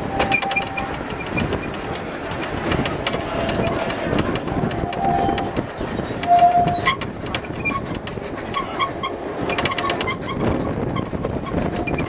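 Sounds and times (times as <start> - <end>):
brief steady tone: 0.0 - 0.9
train wheels clicking over rail joints: 0.0 - 12.0.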